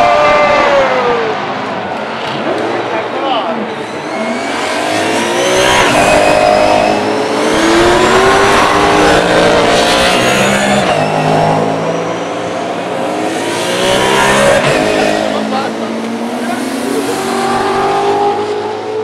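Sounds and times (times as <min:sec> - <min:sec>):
race car engines revving: 0:00.0 - 0:19.0.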